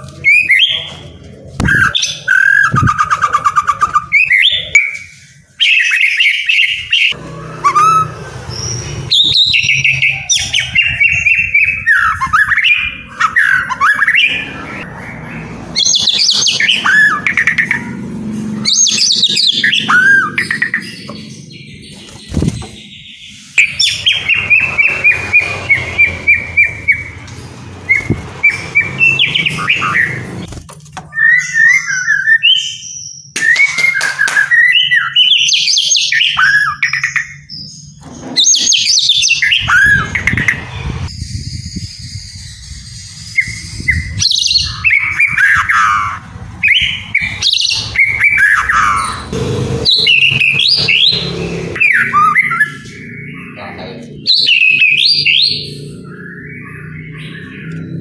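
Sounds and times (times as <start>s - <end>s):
bird singing whistled phrases: 31.1s - 37.7s.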